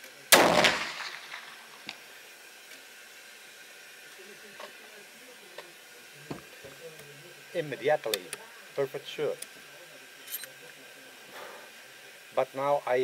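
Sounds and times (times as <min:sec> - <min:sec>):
rifle shot: 0:00.3 - 0:02.0.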